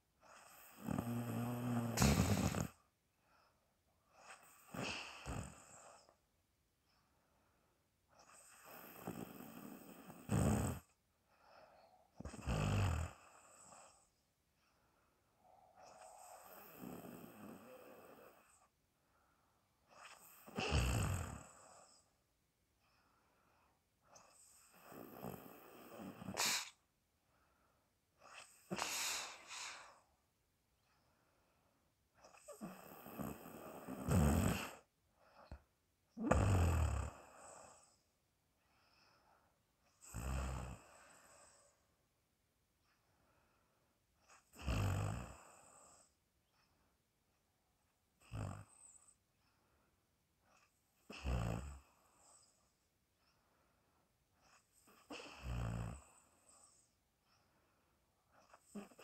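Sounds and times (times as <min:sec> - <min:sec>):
people snoring: 0:00.4 - 0:02.8, 0:08.3 - 0:10.9, 0:20.0 - 0:21.9, 0:32.5 - 0:34.8, 0:36.2 - 0:37.9.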